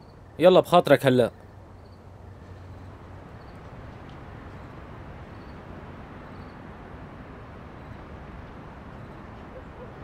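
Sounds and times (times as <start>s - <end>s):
faint high insect chirps: 0.0s - 0.3s, 1.6s - 3.7s, 5.3s - 6.7s.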